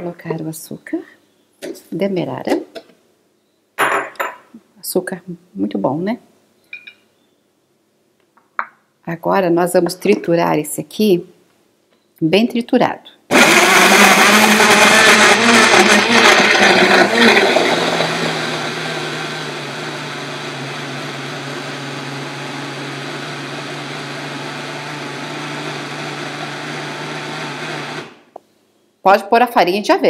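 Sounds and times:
blender whirring: 13.3s - 28.2s.

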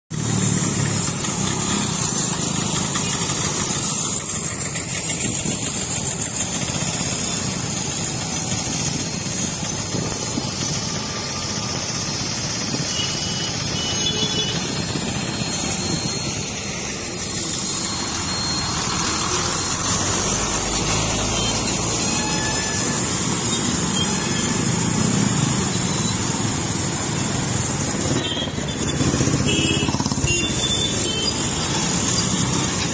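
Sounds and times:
motorcycle and car traffic rumble: 0.1s - 32.9s
high hiss: 0.2s - 29.6s
short high tones: 10.0s - 26.2s.

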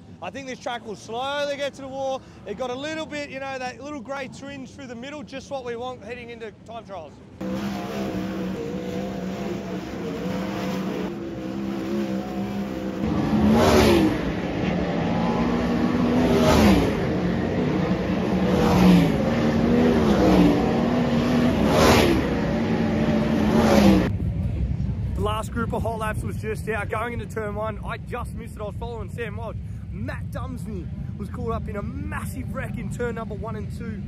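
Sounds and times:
race cars passing by: 7.1s - 25.6s
race car engines at high revs: 7.3s - 24.1s.

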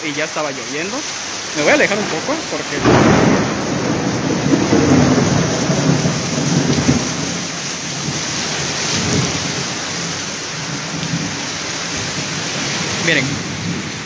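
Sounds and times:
heavy rain: 0.0s - 14.0s
low thunder rumble: 1.5s - 11.4s.

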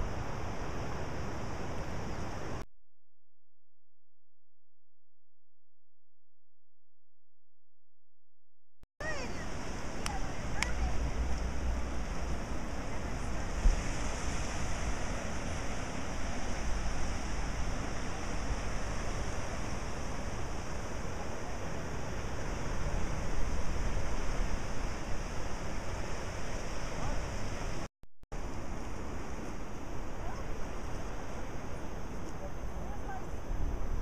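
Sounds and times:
ocean surf washing over rocks: 9.0s - 27.8s.

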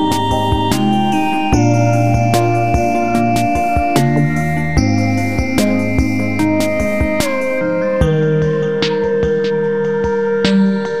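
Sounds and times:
music with held tones and beat: 0.0s - 11.0s.

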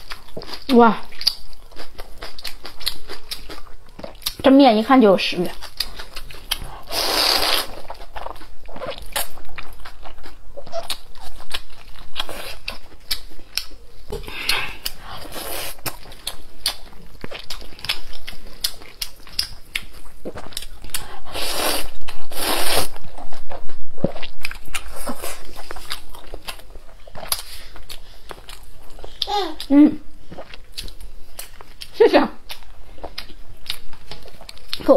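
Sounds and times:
person chewing with wet smacks: 0.0s - 34.9s
person slurping noodles: 6.8s - 7.8s, 21.2s - 22.9s.

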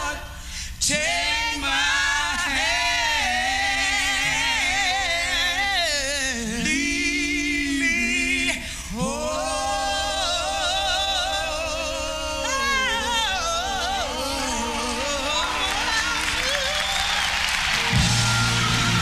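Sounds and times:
person singing gospel soul: 0.0s - 19.0s
soft band backing: 12.2s - 19.0s.

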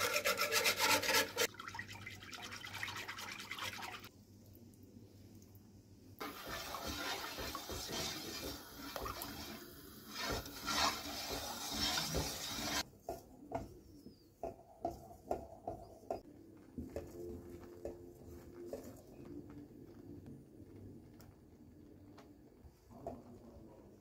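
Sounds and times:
wooden spoon stirring in metal pot: 0.0s - 1.5s, 6.2s - 16.2s.

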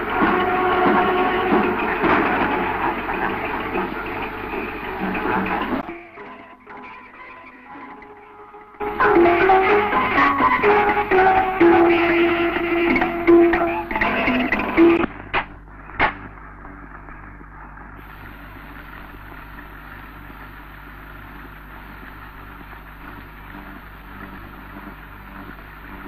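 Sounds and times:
steady hiss: 0.0s - 5.8s, 8.8s - 26.0s
loud music: 0.0s - 6.6s, 8.8s - 15.1s
low hum: 8.8s - 26.0s.

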